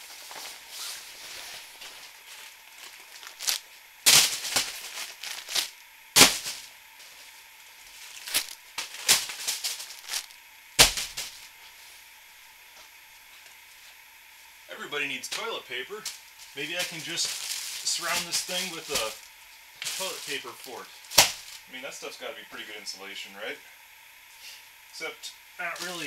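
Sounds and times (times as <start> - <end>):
plastic wrapping rustling: 0.0 - 11.5, 15.9 - 21.7, 25.6 - 26.0
packs thumping onto concrete floor: 2.8 - 6.7, 8.1 - 11.4, 16.8 - 19.2, 21.1 - 21.6.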